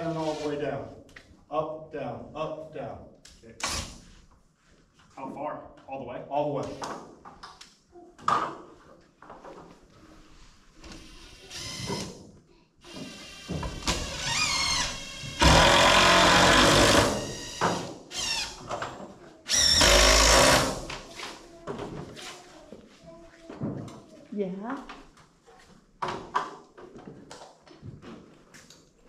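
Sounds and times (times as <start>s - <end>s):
screws driven into wood: 12.9s - 18.8s, 19.5s - 21.1s.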